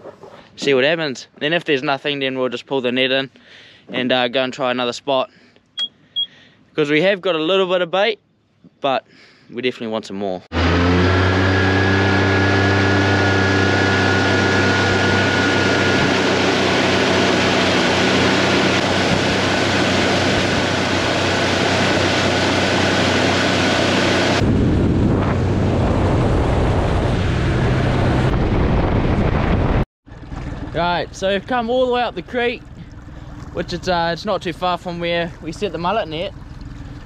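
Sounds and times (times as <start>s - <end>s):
outboard motor whine and hum: 10.5s - 28.5s, 29.6s - 37.0s
rush of wind and water: 12.4s - 30.9s.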